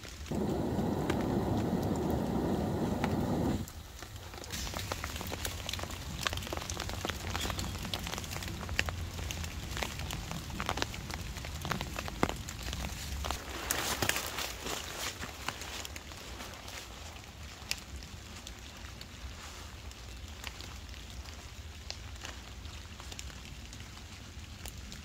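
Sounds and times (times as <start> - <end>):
rain pattering on tarp and leaves: 0.0 - 25.0
dull rushing noise: 0.3 - 3.7.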